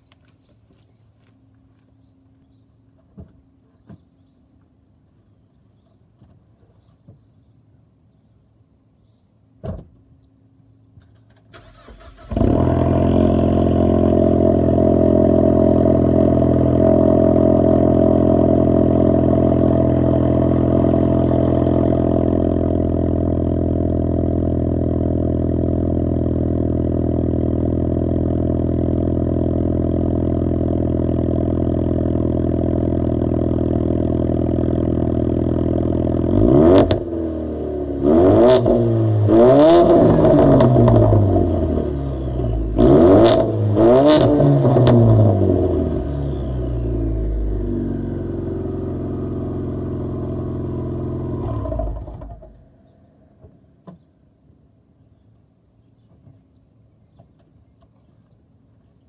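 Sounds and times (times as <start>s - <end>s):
car engine starting and idling: 11.0s - 53.0s
engine revving: 11.6s - 52.6s.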